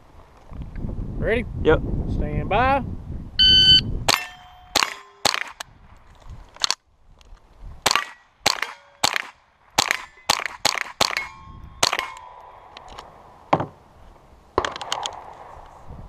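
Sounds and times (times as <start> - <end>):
steel plate targets ringing: 3.6 - 5.4, 11.1 - 12.4
rifle shots: 4.1 - 5.6, 7.9 - 12.6.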